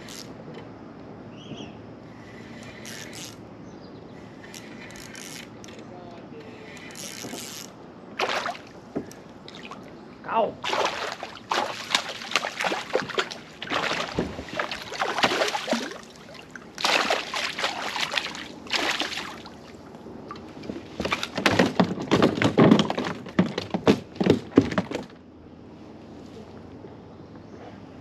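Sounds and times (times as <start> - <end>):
fish splashing at water surface: 8.2 - 9.9, 10.6 - 19.8.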